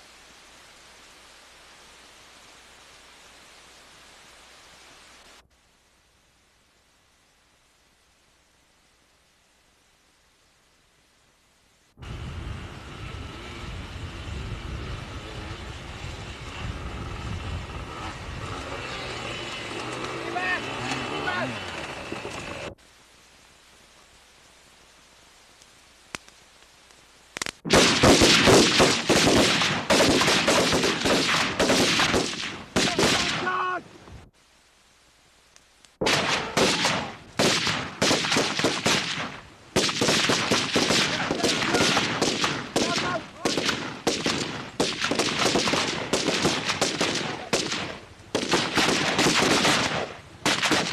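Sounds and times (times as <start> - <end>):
automatic rifles firing rapidly: 27.7 - 33.5, 36.0 - 50.9.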